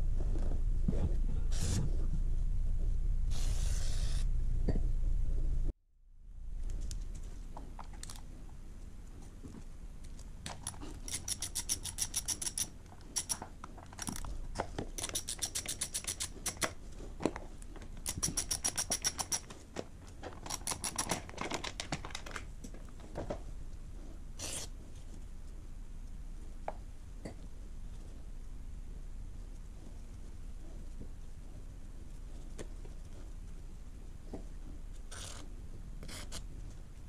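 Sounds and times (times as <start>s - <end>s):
ratchet wrench clicking: 10.6s - 13.4s, 15.0s - 16.7s, 18.0s - 19.4s.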